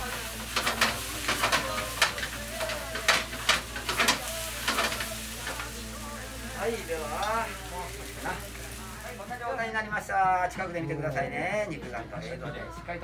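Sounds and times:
rice sizzling in frying pan: 0.0 - 10.2.

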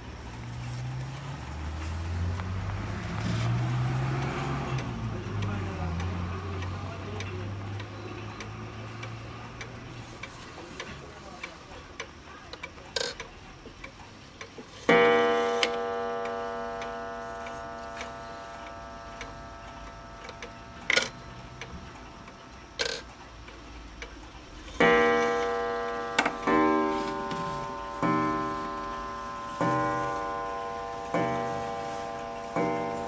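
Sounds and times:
pendulum clock ticking: 3.7 - 33.0
clock hands clicking: 3.9 - 33.0
clock gong strokes: 14.9 - 22.3, 24.8 - 33.0.

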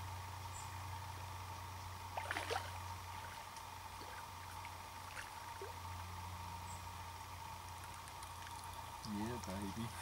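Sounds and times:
steady low hum: 0.0 - 10.0
water splashing: 2.2 - 5.8.

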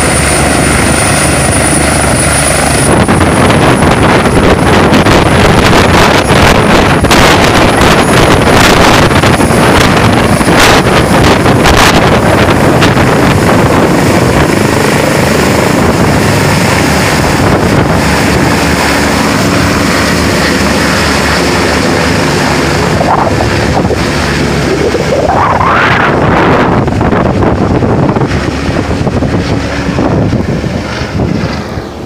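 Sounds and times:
helicopter rotor and turbine: 0.0 - 32.0
wind buffeting microphone: 0.0 - 32.0.

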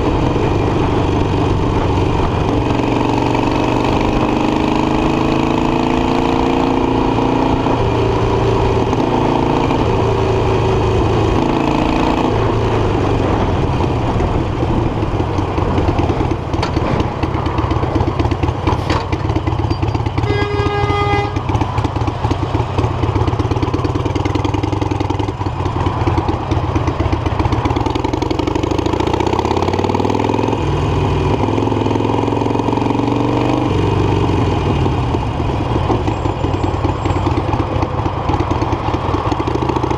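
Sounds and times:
wind noise: 0.0 - 5.8, 7.4 - 19.2
motorcycle engine cruising: 0.0 - 39.9
high horn-like tone: 20.1 - 21.6.

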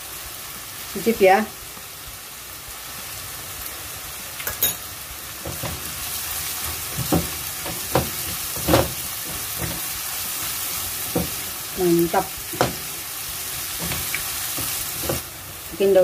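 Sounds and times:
food sizzling in a wok: 0.0 - 16.0
spatula scraping a pan: 5.4 - 15.8.

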